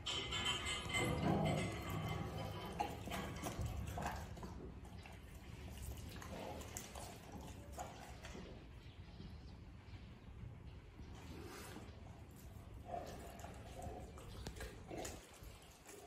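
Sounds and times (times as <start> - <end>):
wet chewing and tearing: 12.3 - 16.0.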